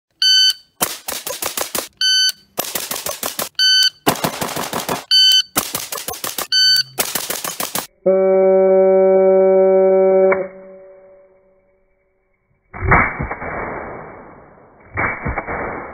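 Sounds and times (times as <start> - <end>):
shot timer beep: 0.2 - 0.8, 2.0 - 2.6, 3.5 - 4.0, 5.1 - 7.1
rifle rapid fire: 0.8 - 2.0, 2.6 - 7.9, 13.0 - 15.9.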